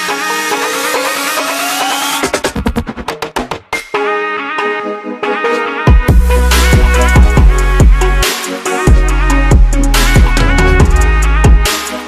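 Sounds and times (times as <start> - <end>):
kick drum: 5.9 - 8.2, 8.9 - 11.7
heavy bass line: 5.9 - 11.8.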